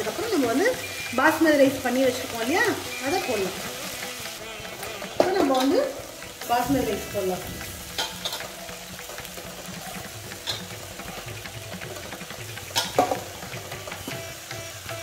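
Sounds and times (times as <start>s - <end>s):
rice sizzling in a pan: 0.0s - 15.0s
knocks against pan: 10.3s - 14.2s.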